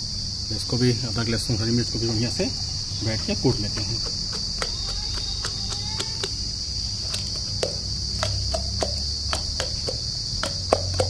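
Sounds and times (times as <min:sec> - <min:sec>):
high insect drone: 0:00.0 - 0:11.0.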